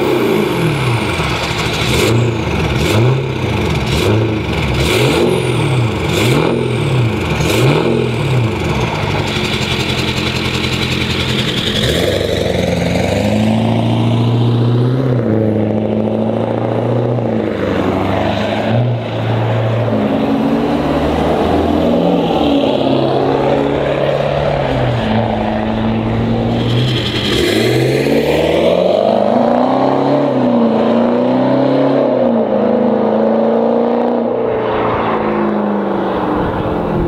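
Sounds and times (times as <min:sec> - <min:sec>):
diesel engine accelerating hard: 0:00.0 - 0:37.0.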